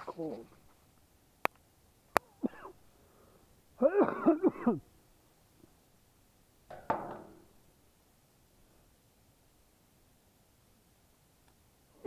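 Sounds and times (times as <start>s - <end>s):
man coughing: 2.4s - 2.8s, 3.8s - 4.9s.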